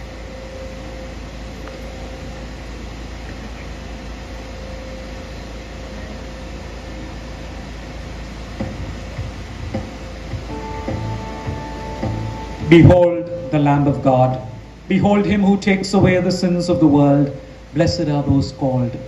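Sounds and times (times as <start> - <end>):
background hum and hiss: 0.0 - 19.0
faint constant tone: 0.0 - 19.0
low knocks: 8.6 - 13.0.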